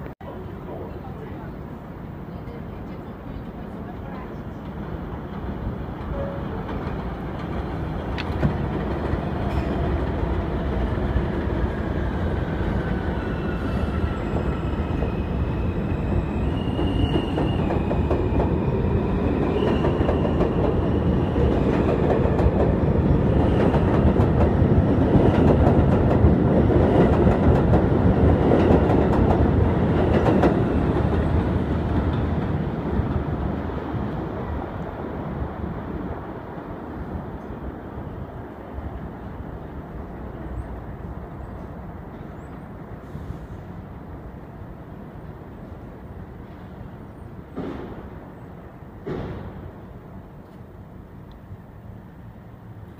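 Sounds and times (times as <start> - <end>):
train wheels rumbling on rails: 0.7 - 44.4, 45.1 - 52.9
clacking over rail joints: 4.0 - 10.4.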